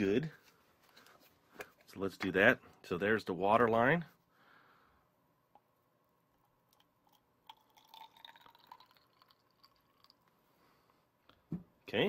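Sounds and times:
water trickling into bottle: 0:06.4 - 0:10.4.

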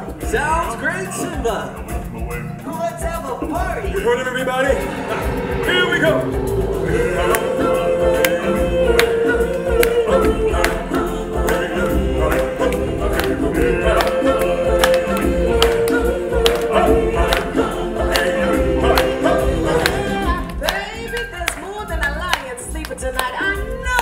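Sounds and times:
backing music: 0:00.0 - 0:24.0
percussion beat: 0:00.0 - 0:24.0
choir singing held notes: 0:04.2 - 0:21.0.

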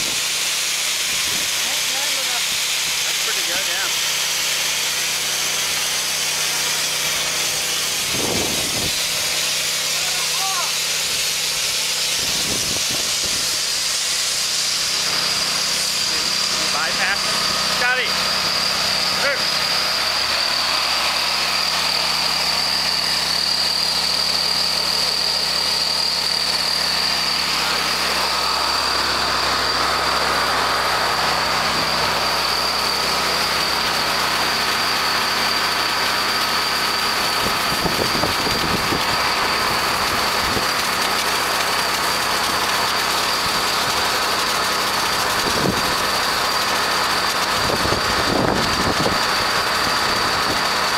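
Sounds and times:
spray gun hissing water: 0:00.0 - 0:47.4
pressure washer engine running: 0:00.0 - 0:50.9
high whine: 0:06.5 - 0:44.4.

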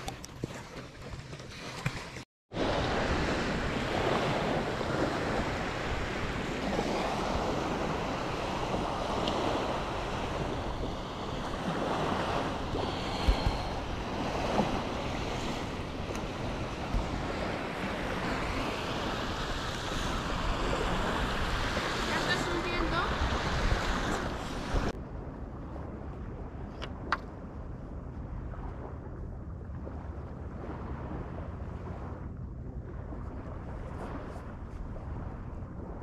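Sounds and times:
sea waves washing: 0:00.0 - 0:36.0
wind rushing over microphone: 0:02.5 - 0:36.0.

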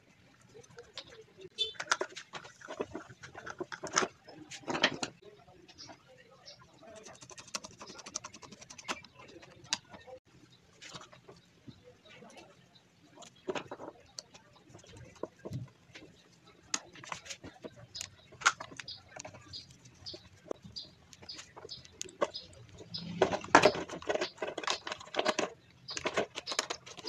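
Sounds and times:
plastic and metal parts rattling: 0:00.4 - 0:05.2, 0:10.8 - 0:11.4, 0:13.2 - 0:27.0.

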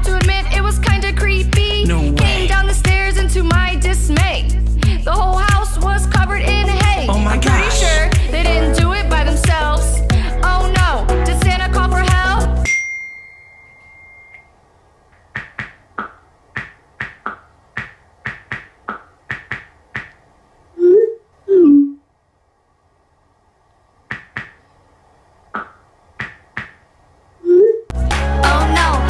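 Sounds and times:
swooping message tones: 0:07.0 - 0:08.2.

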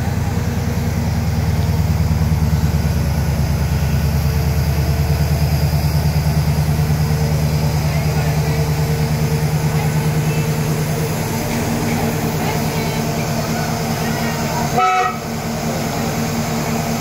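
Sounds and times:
engine idling: 0:00.0 - 0:17.0
short horn toot: 0:14.8 - 0:15.3.

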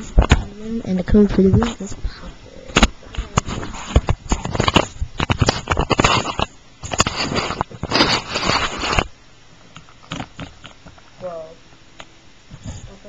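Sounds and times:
plastic toys scraping and clattering: 0:03.2 - 0:09.1.

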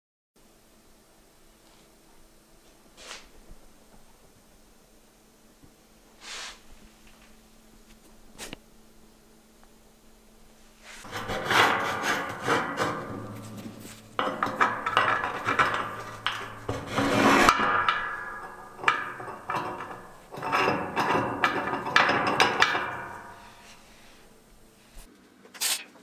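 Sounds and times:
steel scraping and knocking on steel: 0:10.8 - 0:25.1.

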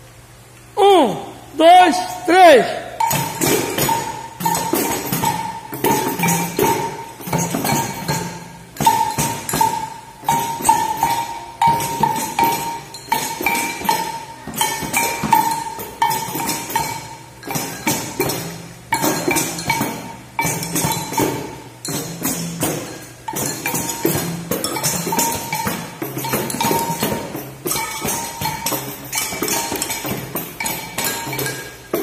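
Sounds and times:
frame drums with jingles: 0:01.6 - 0:32.0.

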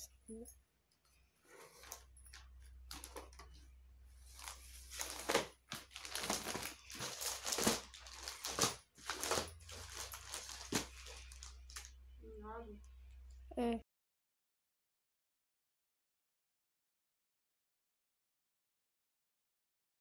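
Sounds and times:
plastic packaging crinkling: 0:01.8 - 0:03.6, 0:04.2 - 0:12.0.

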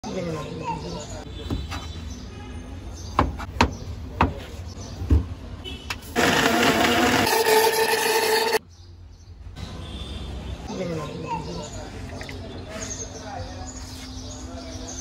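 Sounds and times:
electric blender running: 0:06.2 - 0:08.6.

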